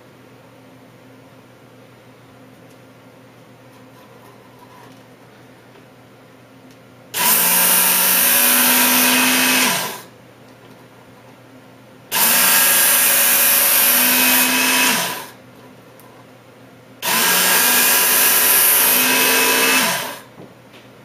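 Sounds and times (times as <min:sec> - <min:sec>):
belt sharpener motor: 0:07.2 - 0:10.1, 0:12.1 - 0:15.4, 0:17.0 - 0:20.3.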